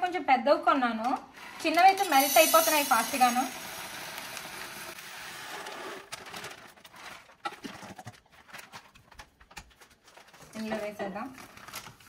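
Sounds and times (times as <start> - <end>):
pearls pouring into glass jar: 2.0 - 5.0.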